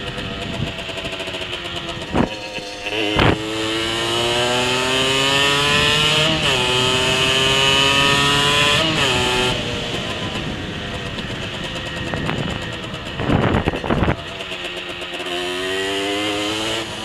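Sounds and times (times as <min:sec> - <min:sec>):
two-stroke moped engine revving: 0:00.0 - 0:17.0.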